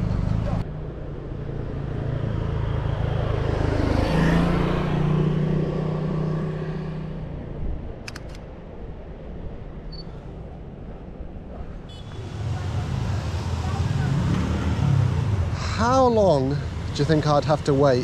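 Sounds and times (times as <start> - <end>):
vehicle engine passing by: 1.6 - 7.2, 12.2 - 18.0
sharp clicks: 8.0 - 8.5.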